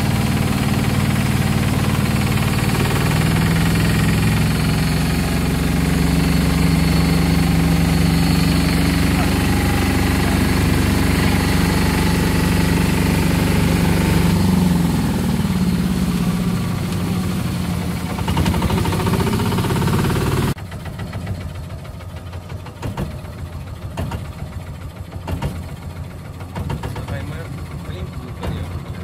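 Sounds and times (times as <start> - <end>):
boat engine running: 0.0 - 29.0
engine knocks: 0.0 - 29.0.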